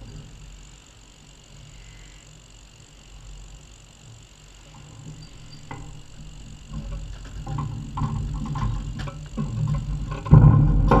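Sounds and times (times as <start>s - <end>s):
hooves and gates clattering: 5.0s - 11.0s.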